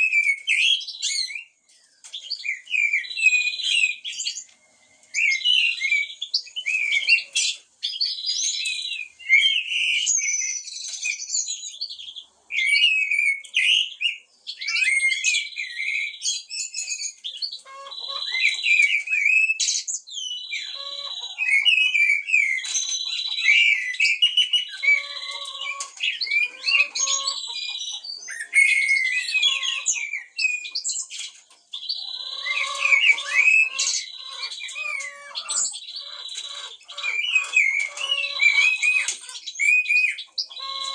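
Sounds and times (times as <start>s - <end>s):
birds whistling and chirping: 0.0s - 40.9s
blackbirds singing: 0.0s - 40.9s
buzzy bird trill: 20.3s - 40.9s.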